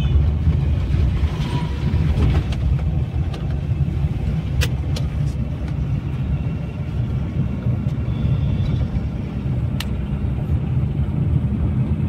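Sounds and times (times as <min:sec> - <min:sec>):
car interior engine and road rumble: 0:00.0 - 0:12.0.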